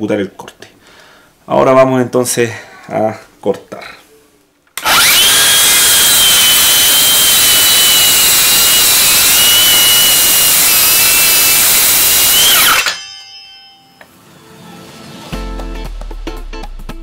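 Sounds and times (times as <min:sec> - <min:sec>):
circular saw cutting wood: 0:04.8 - 0:13.4.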